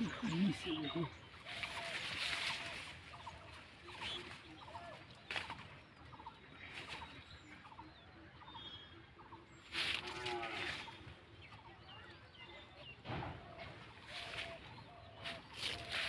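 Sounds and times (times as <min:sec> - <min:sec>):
rustle of vines and leaves: 0:00.0 - 0:07.5, 0:09.6 - 0:11.2, 0:13.8 - 0:16.0
birds calling: 0:00.0 - 0:16.0.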